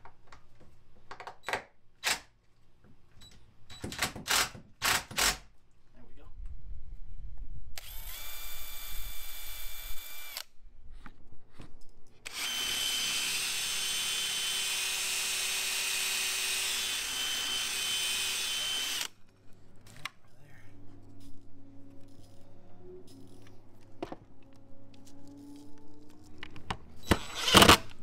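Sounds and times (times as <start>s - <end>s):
cordless drill whining: 7.8s - 10.5s, 12.2s - 19.2s, 27.0s - 28.0s.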